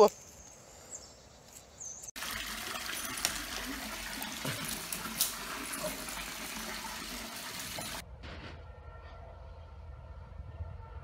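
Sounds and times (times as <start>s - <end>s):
water running: 2.2s - 8.0s.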